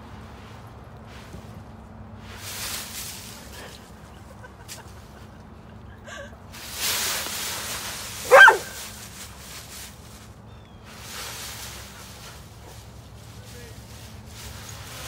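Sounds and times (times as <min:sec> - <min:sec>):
dry leaves rustling: 0:00.0 - 0:05.2, 0:06.5 - 0:15.0
high-pitched dog bark: 0:08.2 - 0:08.8.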